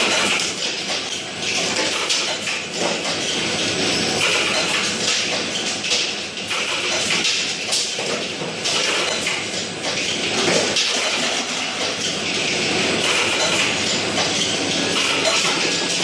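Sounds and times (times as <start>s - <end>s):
capping machine clatter: 0.0s - 16.0s.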